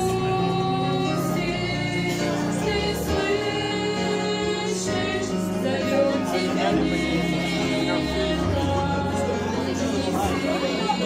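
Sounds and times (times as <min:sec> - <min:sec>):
hymn on electronic keyboard: 0:00.0 - 0:11.0.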